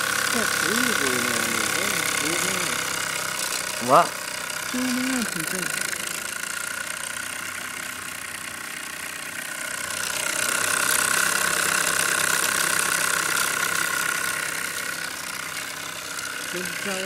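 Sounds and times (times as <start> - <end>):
steam engine hissing and whining: 0.0 - 7.3.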